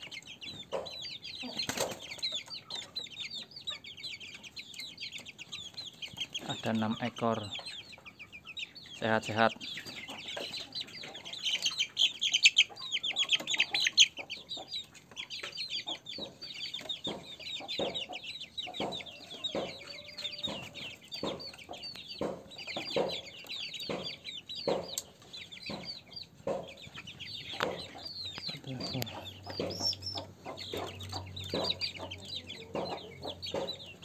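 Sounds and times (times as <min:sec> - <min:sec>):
chicks peeping: 0:00.0 - 0:34.0
low clucks: 0:09.2 - 0:34.0.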